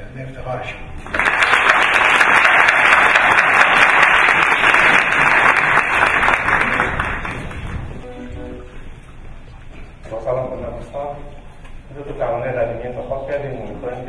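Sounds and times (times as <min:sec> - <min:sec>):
audience applauding: 0:01.0 - 0:08.0.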